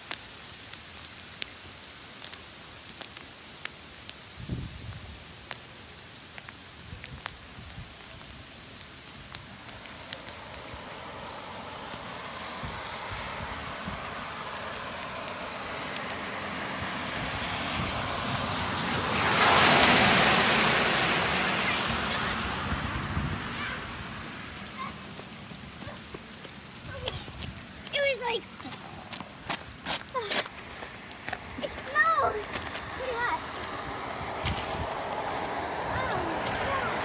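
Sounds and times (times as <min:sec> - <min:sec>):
hailstones ticking: 0:00.0 - 0:17.1, 0:24.5 - 0:33.8
car tyres hissing on wet road: 0:00.0 - 0:37.0.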